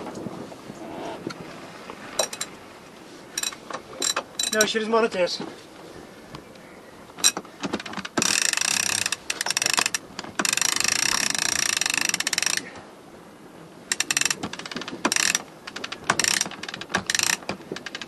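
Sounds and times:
winch ratchet clicking: 7.2s - 12.7s, 13.9s - 18.0s.

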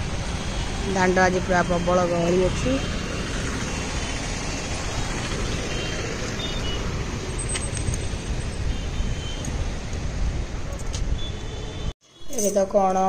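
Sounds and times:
heavy road traffic: 0.0s - 13.0s
wind rumbling on microphone: 2.6s - 11.9s.

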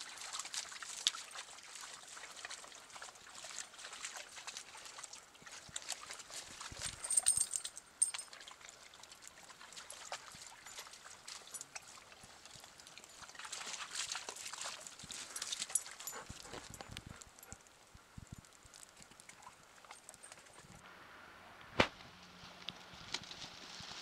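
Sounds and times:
dogs splashing and lapping water: 0.0s - 17.9s, 18.5s - 20.8s.

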